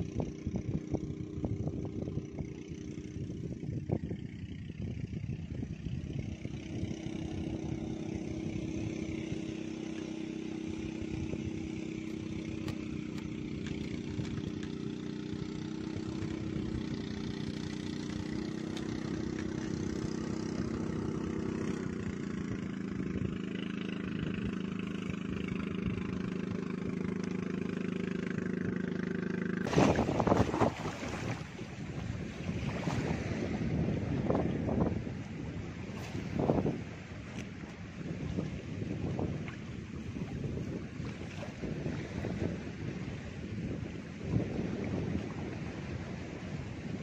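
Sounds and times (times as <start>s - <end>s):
small engine running: 0.0s - 47.0s.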